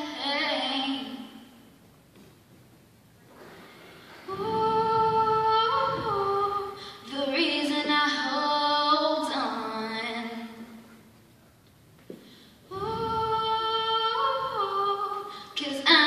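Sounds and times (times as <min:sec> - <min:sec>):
singer breathing: 0:03.2 - 0:05.3, 0:06.4 - 0:07.1, 0:12.1 - 0:12.8, 0:15.2 - 0:15.6.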